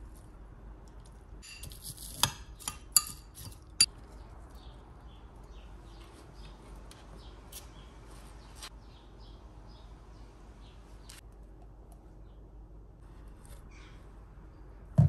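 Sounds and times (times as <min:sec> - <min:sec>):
kitchenware clinking: 0:01.4 - 0:03.9
faint birds chirping: 0:03.8 - 0:15.0.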